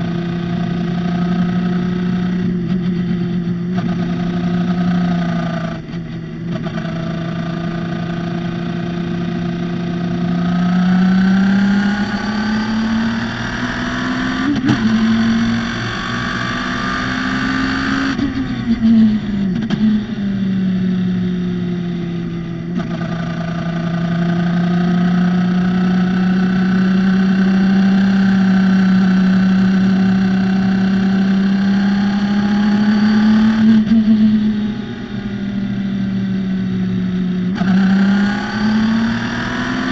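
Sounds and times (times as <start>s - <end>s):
race car engine revving: 10.2s - 20.2s, 22.8s - 35.4s, 37.4s - 39.9s.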